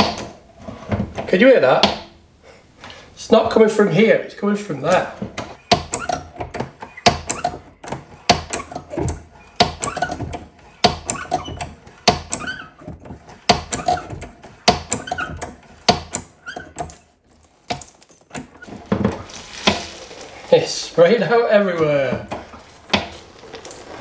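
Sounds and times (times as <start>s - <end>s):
hand pump knocking and squeaking: 4.8s - 17.1s, 21.8s - 24.0s.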